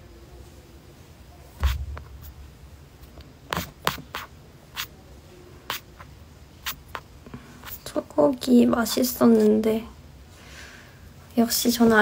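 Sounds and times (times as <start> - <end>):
soft handling thump: 1.6 - 2.2.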